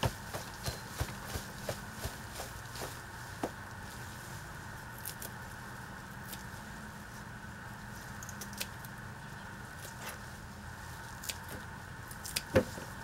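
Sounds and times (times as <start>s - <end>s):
low background hum: 0.0s - 13.0s
scissors snipping: 8.2s - 8.9s, 11.2s - 12.5s.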